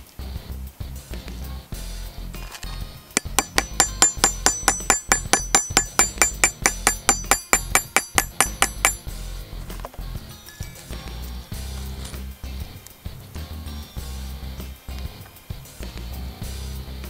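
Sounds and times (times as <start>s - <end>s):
hammer striking metal: 3.2s - 9.1s.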